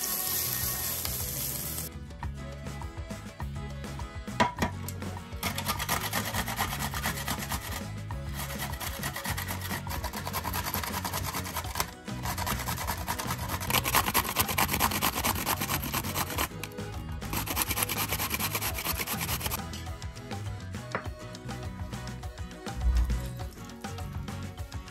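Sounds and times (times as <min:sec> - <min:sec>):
grating on metal grater: 0:05.4 - 0:16.5, 0:17.3 - 0:19.6.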